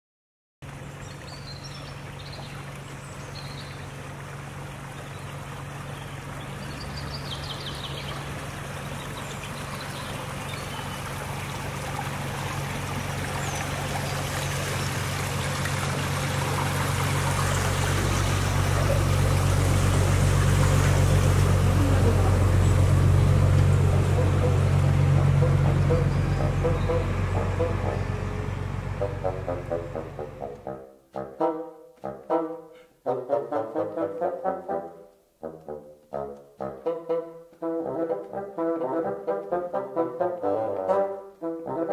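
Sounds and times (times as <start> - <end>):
boat engine humming: 0.6 - 31.0
moving water: 0.6 - 31.7
birds chirping: 0.8 - 30.6.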